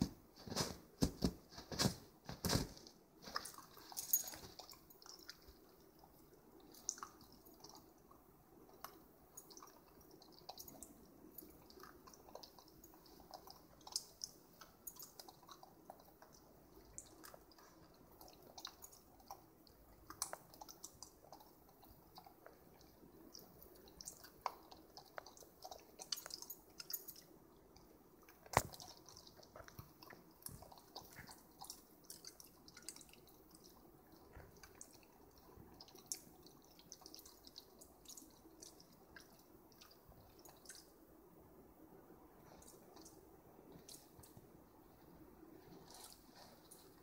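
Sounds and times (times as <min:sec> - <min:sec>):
puppy chewing ice cube: 0:28.2 - 0:40.8.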